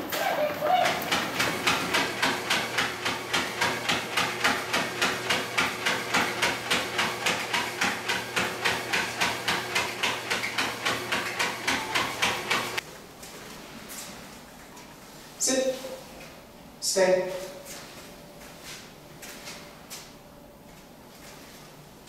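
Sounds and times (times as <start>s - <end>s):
treadmill motor humming: 0.0s - 13.4s.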